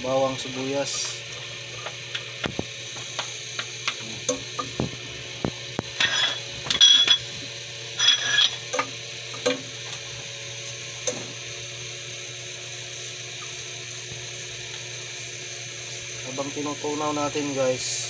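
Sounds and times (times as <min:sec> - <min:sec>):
butter sizzling: 0:00.3 - 0:16.6.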